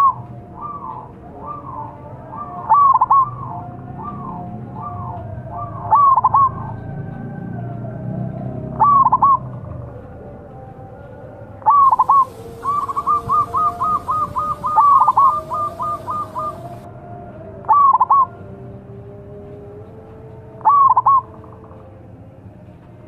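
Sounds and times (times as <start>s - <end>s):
dove cooing: 0.0s - 6.8s, 8.7s - 9.6s, 11.6s - 16.9s, 17.7s - 18.3s, 20.6s - 21.7s.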